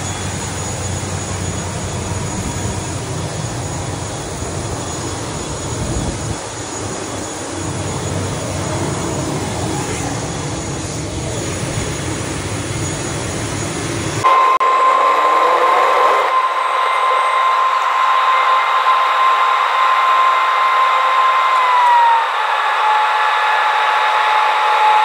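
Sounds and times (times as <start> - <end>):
outdoor rumble: 0.0 - 14.3
turboprop engines whining: 0.0 - 25.0
rising tone: 14.0 - 25.0.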